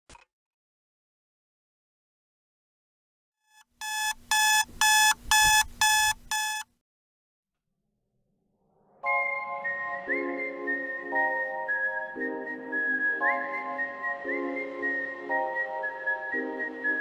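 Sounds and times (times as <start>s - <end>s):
electronic alarm beeping: 3.8s - 6.7s.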